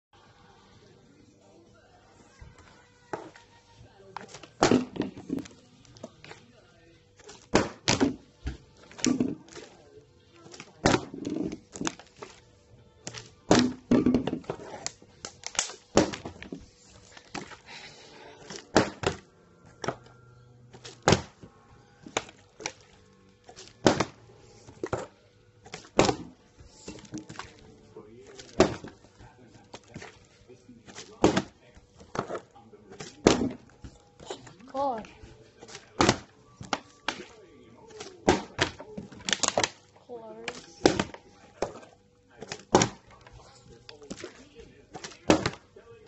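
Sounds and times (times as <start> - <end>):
plastic bottle landing on wood: 4.3 - 5.5, 7.4 - 9.6, 10.6 - 12.0, 13.1 - 14.8, 15.5 - 16.6, 18.5 - 19.2, 20.8 - 21.4, 23.6 - 24.2, 25.7 - 27.6, 28.4 - 29.0, 30.9 - 32.4, 33.0 - 34.0, 35.7 - 37.3, 38.0 - 39.8, 40.5 - 41.8, 42.4 - 43.2, 44.9 - 45.6.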